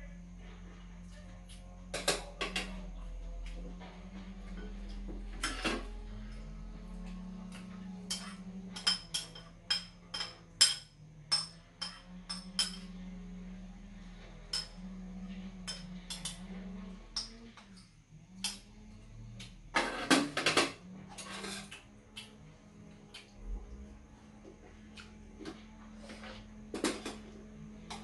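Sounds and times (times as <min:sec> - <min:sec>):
low steady hum: 0:00.0 - 0:28.0
spoons clinking on steel bowls: 0:08.1 - 0:13.0, 0:14.5 - 0:14.8, 0:15.6 - 0:16.5.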